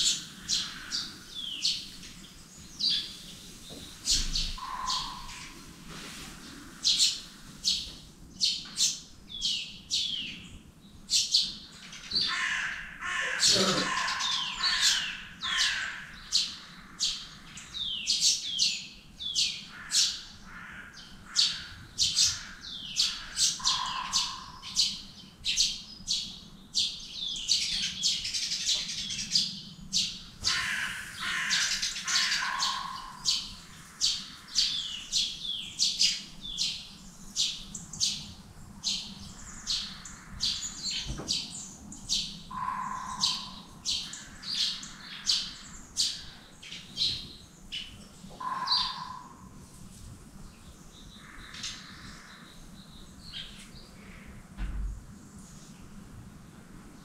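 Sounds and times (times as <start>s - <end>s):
small birds chirping: 0.0s - 49.5s.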